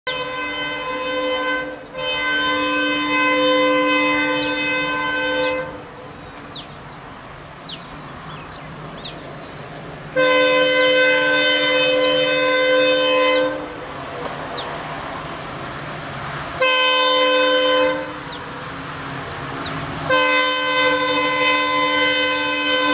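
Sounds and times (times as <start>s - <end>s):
locomotive air horn blasts: 0.1s - 5.9s, 10.1s - 13.9s, 16.5s - 18.5s, 19.9s - 22.9s
train rumbling: 0.1s - 22.9s.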